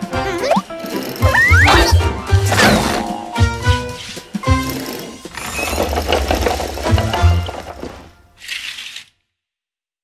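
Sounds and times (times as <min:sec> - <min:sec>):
cartoon music: 0:00.0 - 0:03.9.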